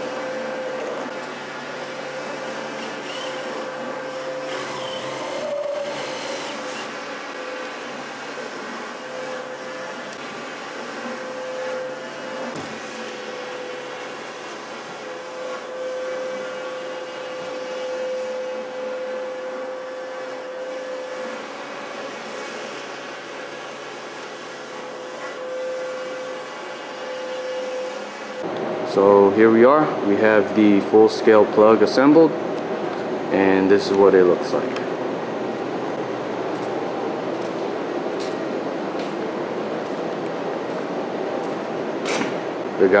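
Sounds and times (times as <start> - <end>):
electric motor humming and whining: 0.0 - 29.1.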